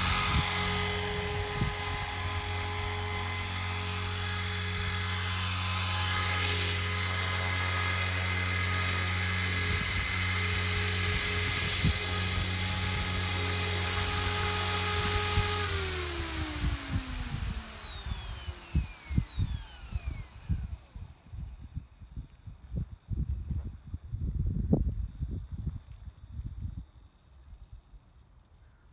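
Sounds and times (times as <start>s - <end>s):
model helicopter rotor whine: 0.0s - 28.1s
wind thumps on microphone: 16.3s - 26.7s.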